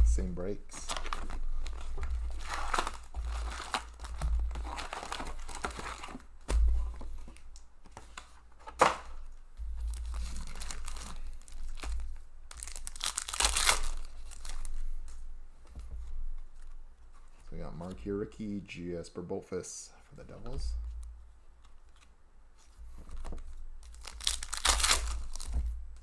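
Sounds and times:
foil packs crinkling: 0.4 - 6.3, 9.9 - 14.8, 23.8 - 25.6
pack tearing open: 0.8 - 6.2, 10.0 - 11.9, 12.5 - 14.7, 23.8 - 25.5.

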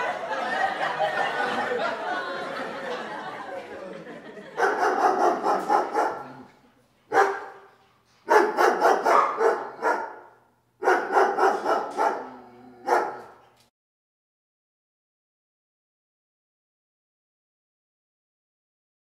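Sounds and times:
dog barking: 4.6 - 6.5, 7.1 - 7.7, 8.3 - 13.4.

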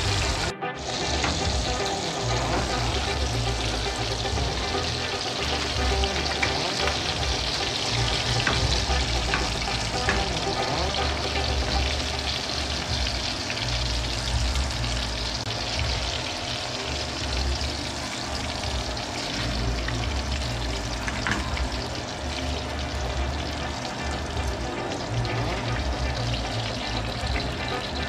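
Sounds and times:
fish sizzling in a frying pan: 0.0 - 28.0
music playing: 0.0 - 28.0.

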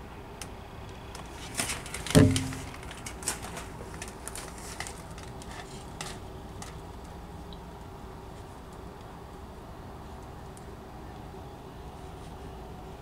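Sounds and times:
metallic clanks and bangs: 2.1 - 2.9.

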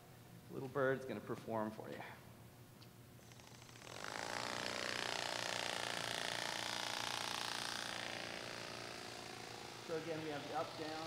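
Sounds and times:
mechanical wing buzz: 3.2 - 11.0.

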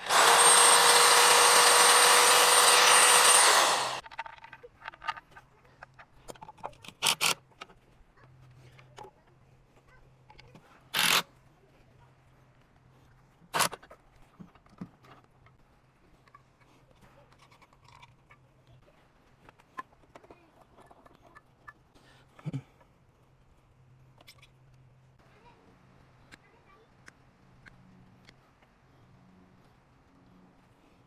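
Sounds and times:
loud bursts: 0.0 - 4.0.

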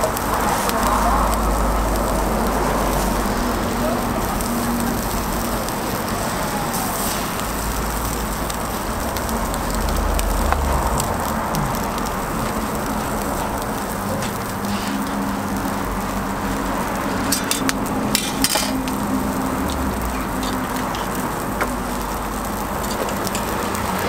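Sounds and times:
egg and cheese sizzling on griddle: 0.0 - 24.0.

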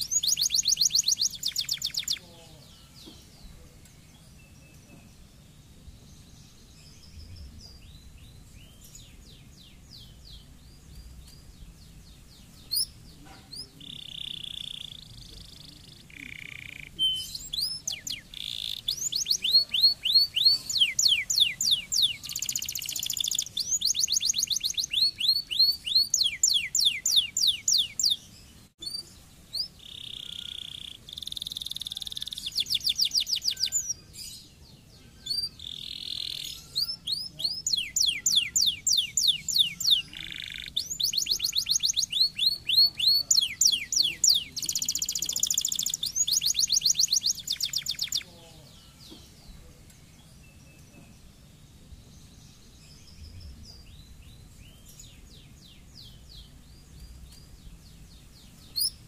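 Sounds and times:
canary singing trills: 0.0 - 59.0.

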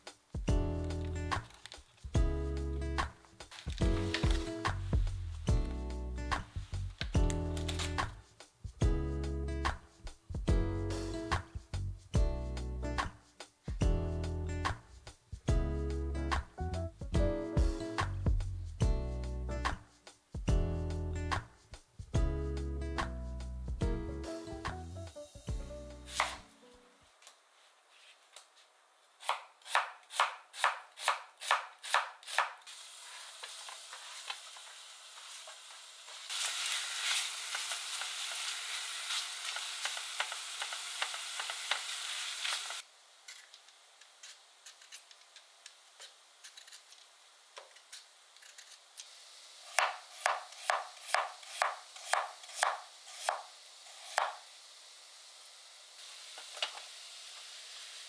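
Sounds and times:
knife chopping on cutting board: 26.1 - 26.4, 29.2 - 32.6, 49.7 - 53.5, 54.1 - 54.4
knife slicing potato on board: 26.1 - 26.5, 29.2 - 32.6, 49.7 - 53.5, 54.1 - 54.4
onions sizzling in a pot: 32.3 - 58.0.

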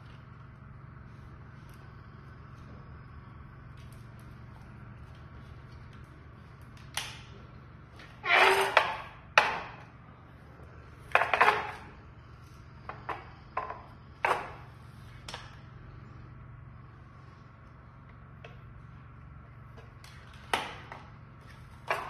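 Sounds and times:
low steady hum: 0.0 - 22.0
knocks clicks and scrapes: 8.0 - 9.8.

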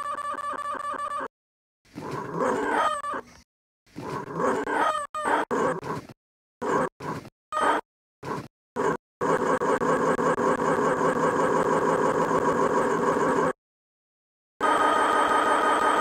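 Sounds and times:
sampled puppy vocal noises: 1.9 - 9.0.

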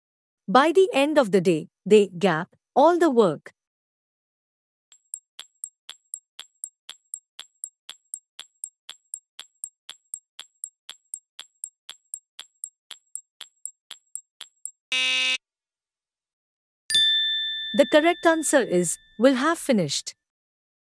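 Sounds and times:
clock ticking: 4.9 - 14.8
buzzer tone: 14.9 - 15.4.

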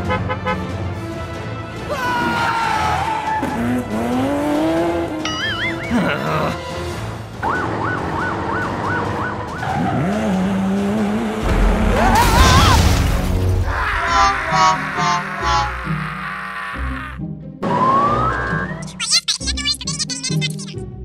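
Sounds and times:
background music: 0.0 - 21.0
two-tone siren-like beeping: 17.6 - 19.0.

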